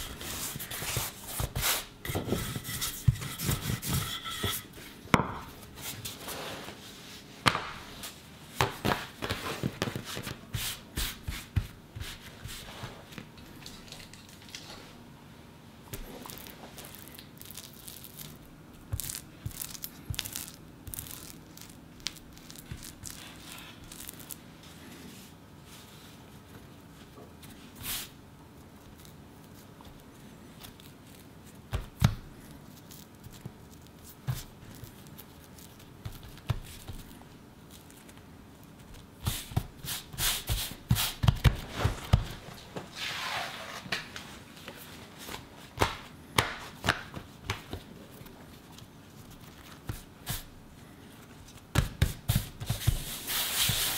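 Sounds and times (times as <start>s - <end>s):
spatula scraping paste on dough: 0.0s - 4.9s
rolling pin rolling dough: 0.0s - 13.2s, 16.0s - 28.2s, 29.6s - 38.0s, 38.6s - 43.5s, 51.5s - 53.9s
hands pressing dough: 31.6s - 37.4s, 38.8s - 42.4s, 45.7s - 50.6s, 51.5s - 53.9s.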